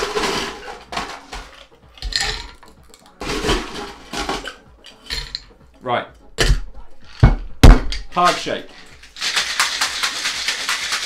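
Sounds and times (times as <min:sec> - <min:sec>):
ice cubes clattering into glass: 0:08.2 - 0:11.0.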